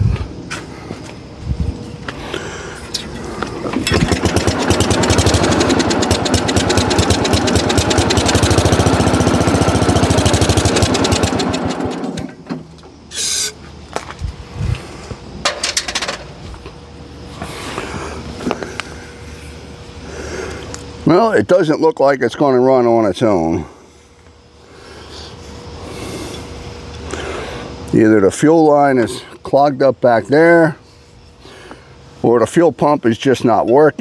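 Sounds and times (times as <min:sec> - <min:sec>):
small engine running rough: 0:03.3 - 0:12.5.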